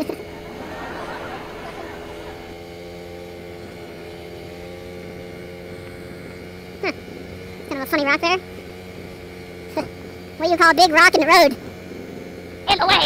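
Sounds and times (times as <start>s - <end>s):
rush of noise: 0.0s - 2.8s
dirt bike engine running: 0.0s - 13.0s.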